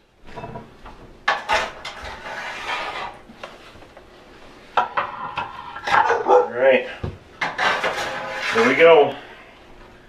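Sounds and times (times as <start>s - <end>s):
metal plate clattering on wood: 0.3s - 3.2s, 4.8s - 6.3s, 7.4s - 8.8s.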